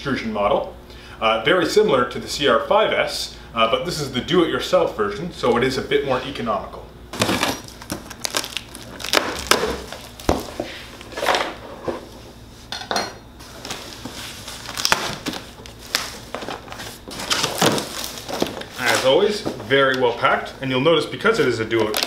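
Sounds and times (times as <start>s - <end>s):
packing tape pulled off: 7.2s - 10.3s, 14.5s - 19.0s
cardboard flaps scraping and rustling: 13.4s - 19.9s.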